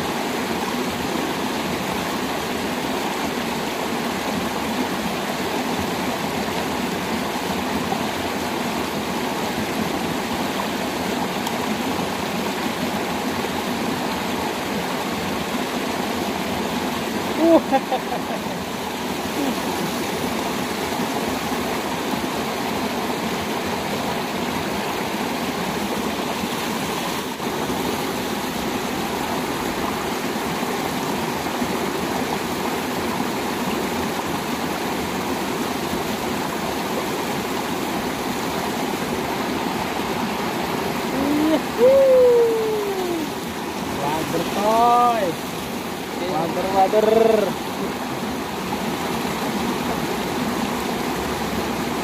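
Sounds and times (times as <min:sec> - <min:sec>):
water rushing in stream: 0:00.0 - 0:52.0
rising and falling call: 0:41.2 - 0:43.3.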